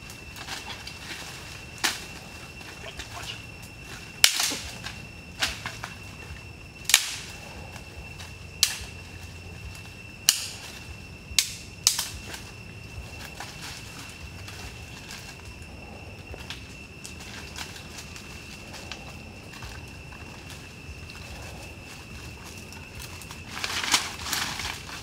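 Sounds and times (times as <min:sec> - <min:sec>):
sticks snapping: 0:04.2 - 0:05.9, 0:06.8 - 0:07.4, 0:08.6 - 0:08.9, 0:10.2 - 0:10.8, 0:11.4 - 0:12.5.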